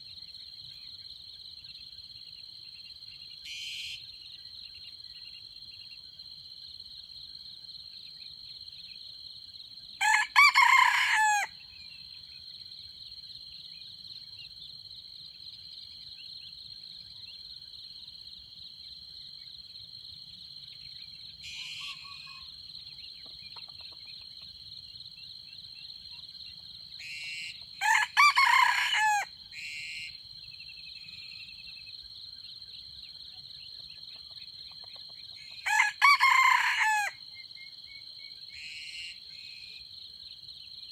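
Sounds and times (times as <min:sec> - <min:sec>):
insects droning: 0:00.0 - 0:40.9
rooster crowing: 0:10.0 - 0:11.6, 0:27.8 - 0:29.3, 0:35.6 - 0:37.2.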